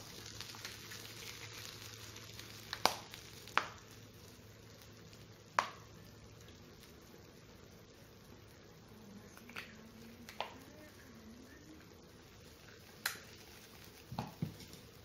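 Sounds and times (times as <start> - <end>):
food sizzling on a hot plate: 0.0 - 15.0.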